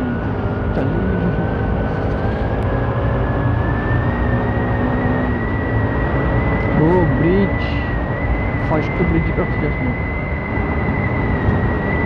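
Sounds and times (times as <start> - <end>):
thin whine rising in pitch: 0.0 - 12.0
wind rushing over microphone: 0.0 - 12.0.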